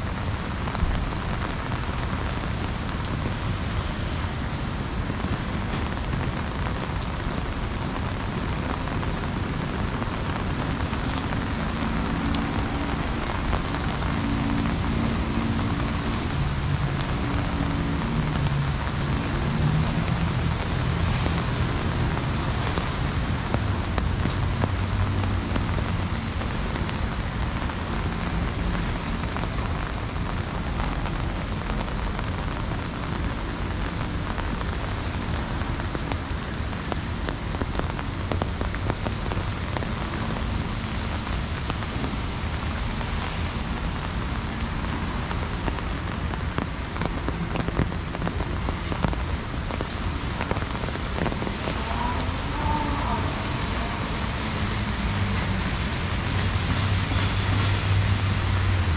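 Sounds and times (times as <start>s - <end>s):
heavy rain falling: 0.0s - 58.9s
low steady rumble: 10.6s - 50.0s.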